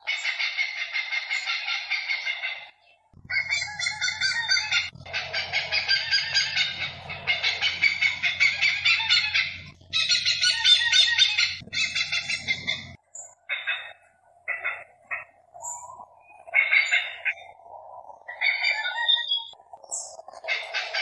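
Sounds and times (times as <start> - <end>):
hornbill calling: 3.3 - 17.5.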